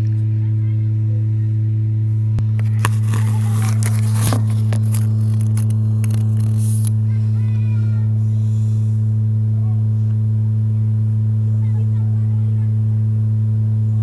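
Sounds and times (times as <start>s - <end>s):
loud low hum: 0.0s - 14.0s
scraping and clicking: 2.4s - 7.0s.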